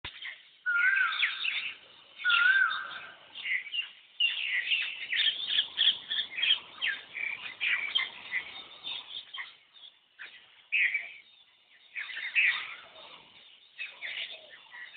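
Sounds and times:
birds chirping: 0.0s - 14.9s
bird whistled calls: 0.7s - 9.0s.

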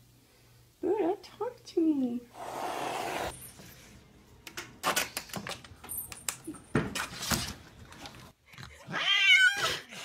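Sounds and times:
cat hissing: 2.3s - 3.3s.

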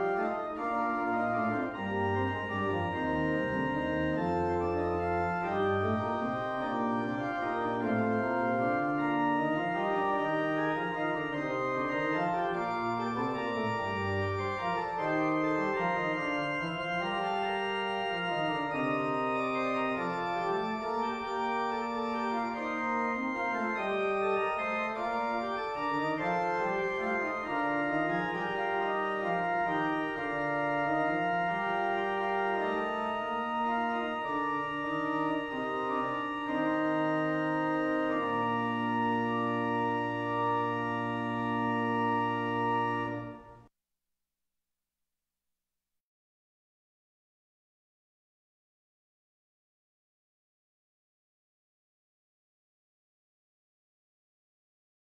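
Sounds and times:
organ playing sustained chords: 0.0s - 43.7s.

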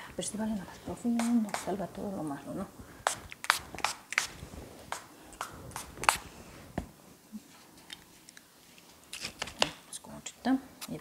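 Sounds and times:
hand slaps and clicks: 1.2s - 1.8s, 3.1s - 4.3s.

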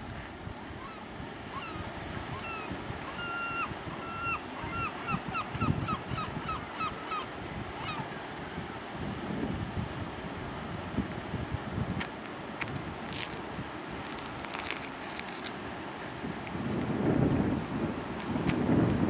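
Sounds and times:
wind rumble on microphone: 0.0s - 19.0s
gull calling: 0.8s - 8.2s.

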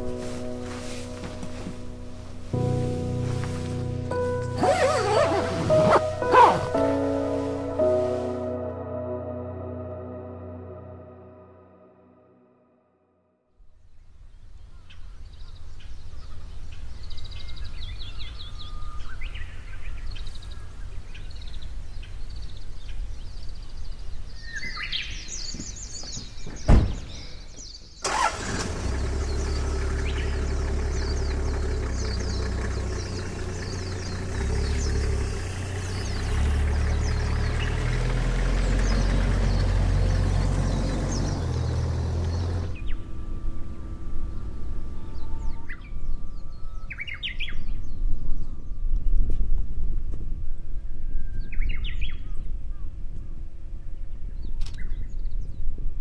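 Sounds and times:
small birds chirping: 13.9s - 49.1s
low outdoor rumble: 28.6s - 50.9s.

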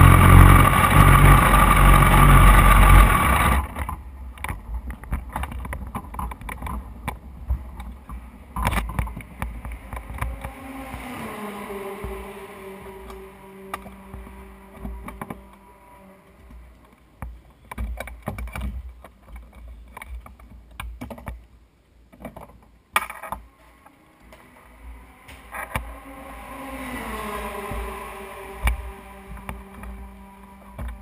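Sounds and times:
rising engine note: 0.0s - 3.8s, 9.2s - 16.8s, 23.5s - 31.0s
engine hum: 0.0s - 20.4s, 22.4s - 31.0s.

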